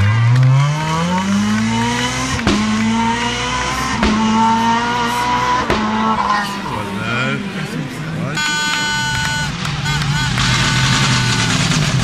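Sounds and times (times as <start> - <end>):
rally car engine at full throttle: 0.0 - 12.0.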